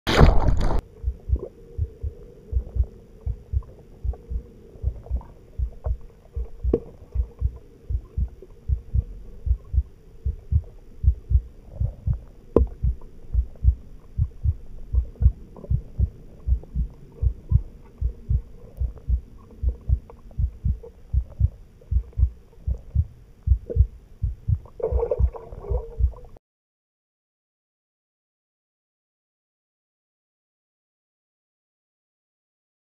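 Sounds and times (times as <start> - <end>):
water splashing and bubbles: 0.1 - 10.6, 24.5 - 26.4
faint hum: 0.1 - 26.4
heartbeat thumping: 0.6 - 26.3.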